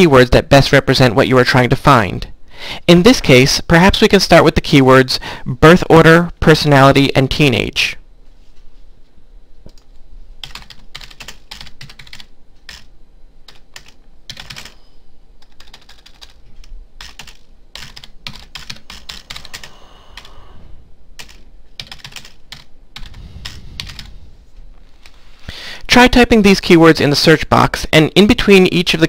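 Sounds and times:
typing on computer keyboard: 0:10.4 - 0:12.9, 0:13.5 - 0:14.8, 0:15.4 - 0:20.3, 0:21.2 - 0:24.1.

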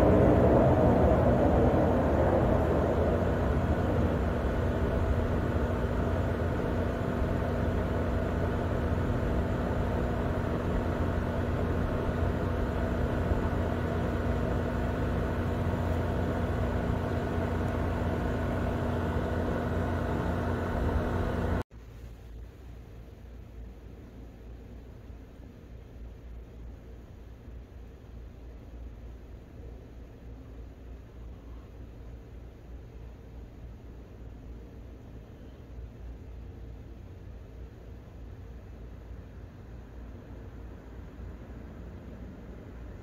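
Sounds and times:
jet airliner roar: 0:00.0 - 0:21.6.

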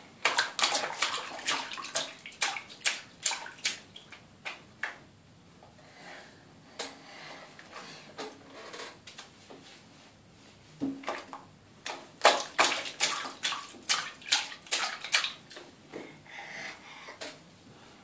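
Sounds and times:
hands splashing bathwater: 0:00.2 - 0:04.6, 0:11.1 - 0:15.6.

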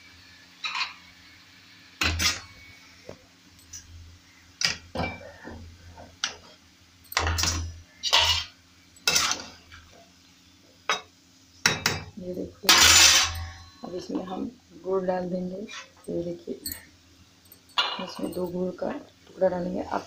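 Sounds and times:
spoon scraping a metal pan: 0:07.3 - 0:09.6, 0:12.7 - 0:13.8.

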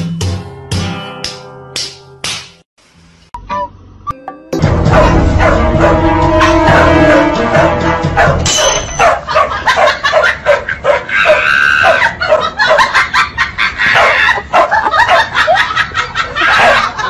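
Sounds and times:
dogs barking and yipping: 0:04.9 - 0:07.2, 0:08.1 - 0:17.0
dog high cry: 0:08.2 - 0:13.0, 0:13.8 - 0:15.6, 0:16.4 - 0:17.0.

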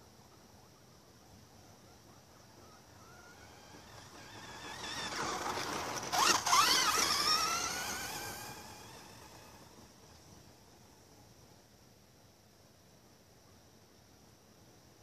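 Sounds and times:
electric motor whining: 0:03.0 - 0:10.3.

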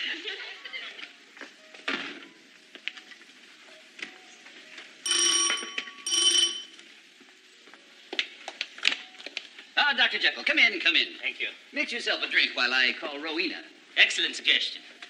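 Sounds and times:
doorbell ringing: 0:05.0 - 0:06.8.

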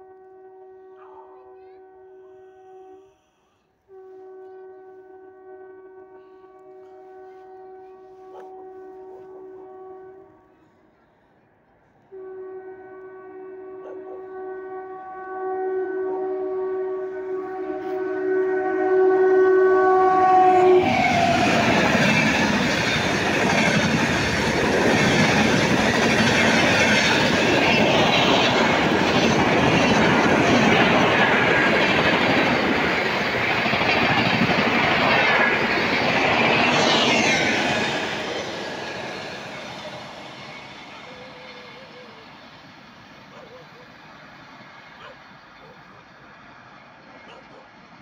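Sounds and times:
train horn: 0:00.0 - 0:10.9, 0:12.0 - 0:42.6
train wheels clattering on rail: 0:20.8 - 0:40.0.

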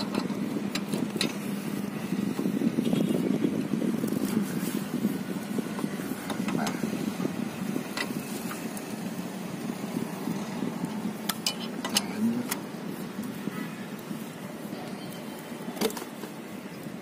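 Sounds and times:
low vehicle rumble: 0:00.0 - 0:17.0.

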